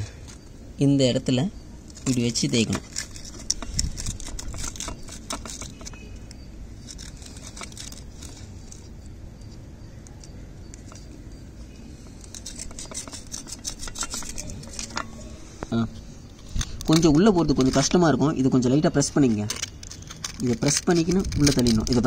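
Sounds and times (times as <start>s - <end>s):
sandpaper scraping metal: 2.1s - 6.0s, 12.1s - 15.4s.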